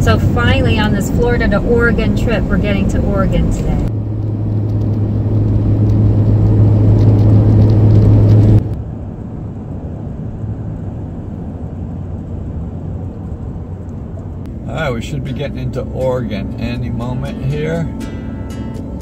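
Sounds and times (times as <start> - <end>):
road noise inside vehicle: 0.0 - 19.0
strong low hum: 0.0 - 19.0.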